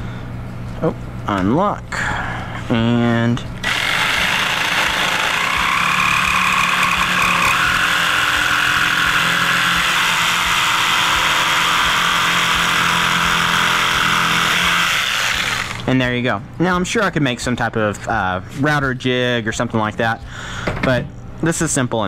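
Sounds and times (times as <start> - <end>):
jigsaw cutting wood: 3.6 - 15.8.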